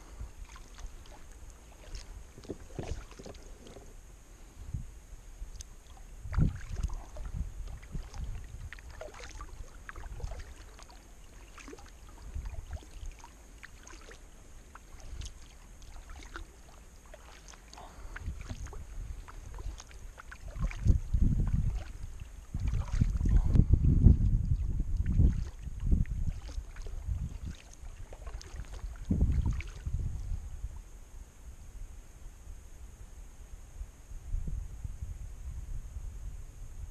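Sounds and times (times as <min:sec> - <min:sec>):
small water splashes: 0:00.0 - 0:03.9, 0:05.4 - 0:30.3
paddle strokes dipping in water: 0:00.0 - 0:04.0, 0:05.4 - 0:30.3
wind rumble on microphone: 0:00.0 - 0:16.6, 0:17.2 - 0:36.9.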